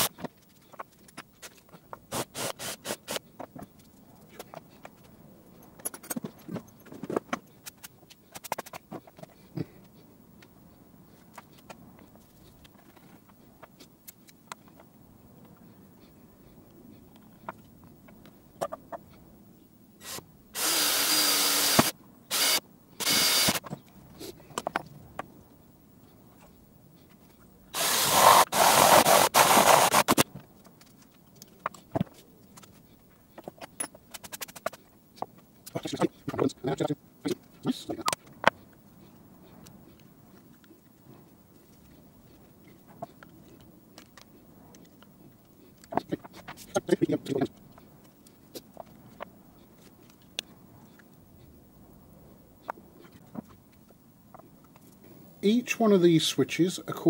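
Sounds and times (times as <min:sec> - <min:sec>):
cordless drill boring through plastic: 0:20.0 - 0:23.6, 0:27.8 - 0:30.2.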